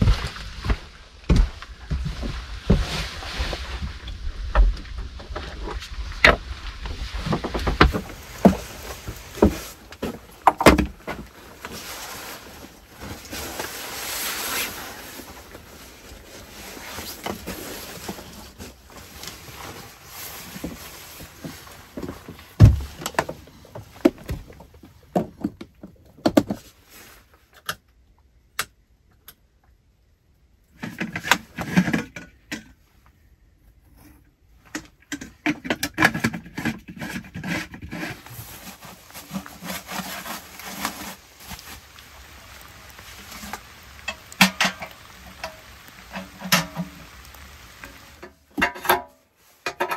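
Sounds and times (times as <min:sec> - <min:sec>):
rain hissing: 0:06.2 - 0:23.0, 0:38.4 - 0:48.5
clattering and clicks of handling: 0:43.4 - 0:47.0, 0:47.8 - 0:49.9.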